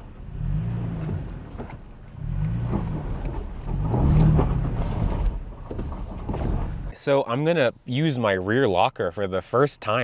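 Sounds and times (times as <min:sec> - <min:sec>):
truck engine revving: 0:00.0 - 0:06.9
stones crunching under tyres: 0:00.8 - 0:06.9.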